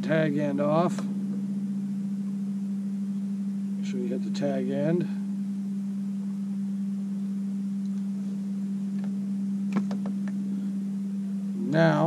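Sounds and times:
steady low hum: 0.0 - 12.0
faint sharp clicks: 7.8 - 8.1.

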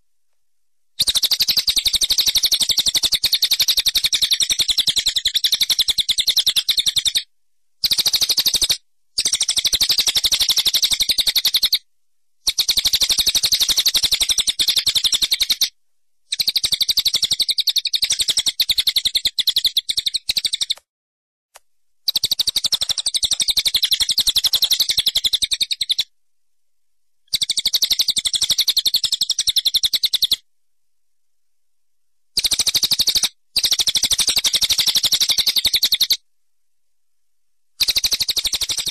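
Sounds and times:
bird chirping in trills: 16.3 - 20.8, 22.1 - 26.1.

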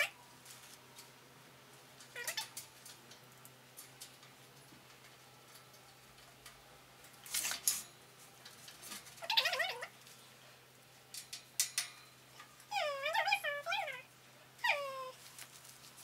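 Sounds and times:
metal parts rustling and clicking: 2.0 - 10.2, 11.0 - 12.7.

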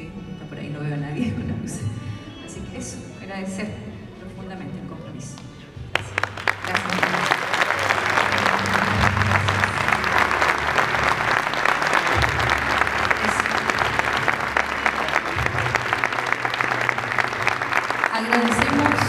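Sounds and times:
audience applauding: 5.9 - 19.0.

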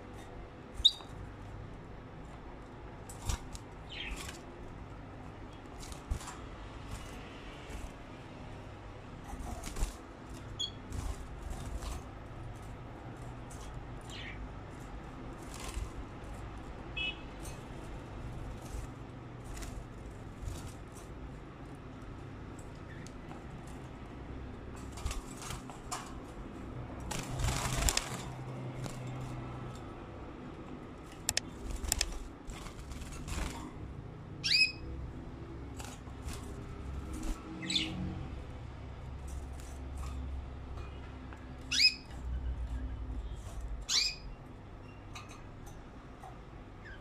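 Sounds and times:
wing flapping: 9.3 - 16.4, 27.0 - 29.4, 31.1 - 33.9
bird feet clicking on wire: 31.1 - 32.3.

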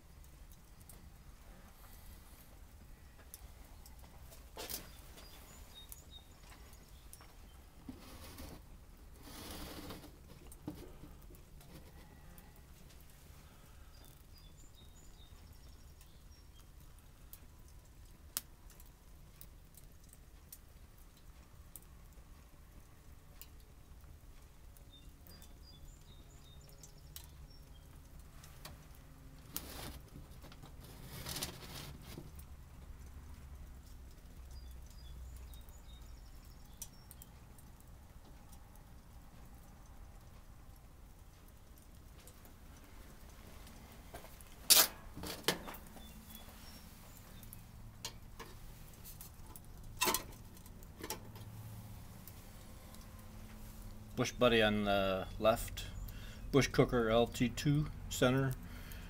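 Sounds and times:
small wood fires crackling: 0.0 - 59.0
bird chirps: 4.8 - 7.6, 13.8 - 16.8, 24.8 - 28.0, 34.5 - 37.4, 45.6 - 47.6
camera rustling scrapes: 7.9 - 8.6, 9.2 - 10.2, 30.8 - 32.2.

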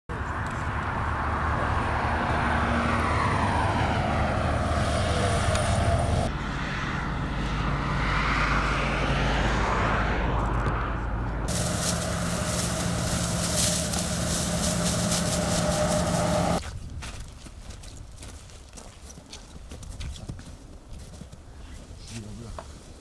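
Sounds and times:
lorries passing on highway: 0.1 - 16.6.

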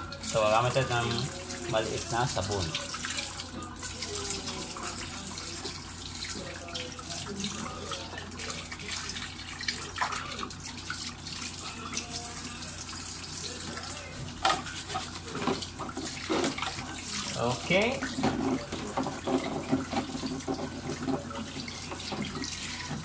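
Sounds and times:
tap water running into sink: 0.0 - 23.0
sponge scrubbing plastic: 14.6 - 23.0.

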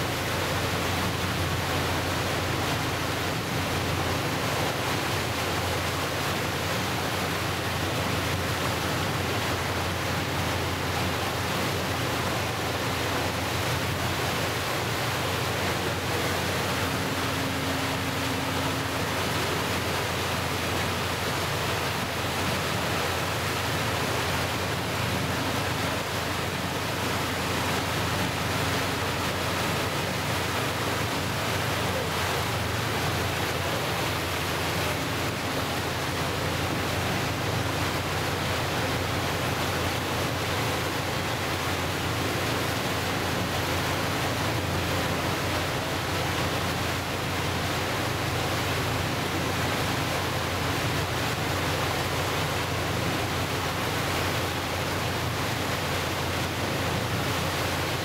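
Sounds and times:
choppy waves breaking: 0.0 - 58.0.

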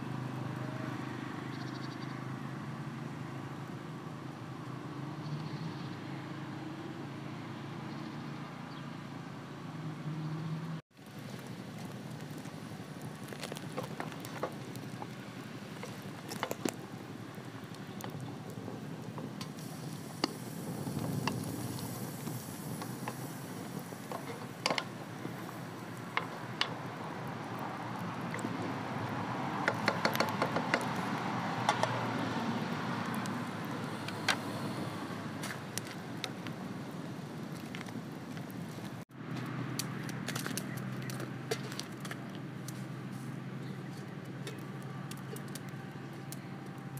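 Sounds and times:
broth bubbling in a pot: 10.9 - 36.7.

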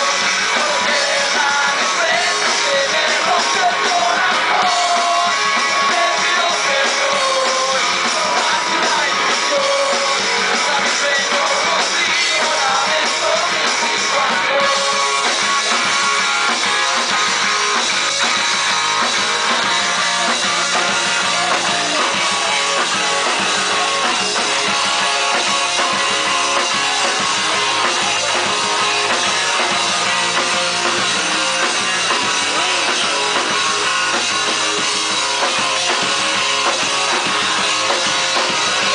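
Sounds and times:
person singing: 0.0 - 15.8, 20.0 - 33.6
drum kit: 0.0 - 38.9
electric guitar: 0.0 - 38.9.

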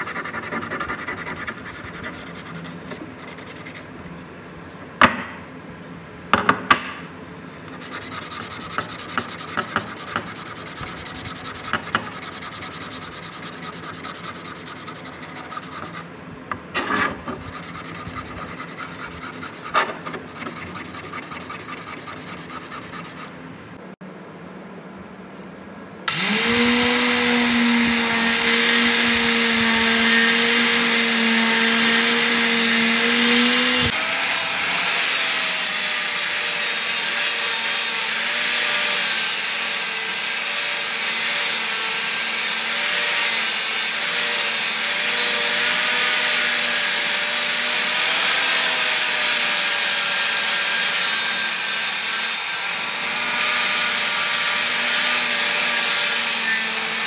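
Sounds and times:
wire brush scrubbing steel: 0.0 - 3.9, 7.7 - 16.2, 16.8 - 23.4
angle grinder grinding steel: 26.1 - 57.0.

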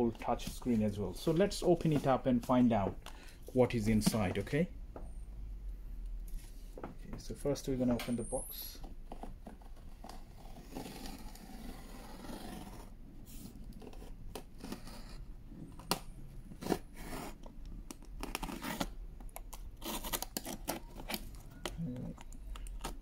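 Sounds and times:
knife slitting packing tape: 16.6 - 21.3.

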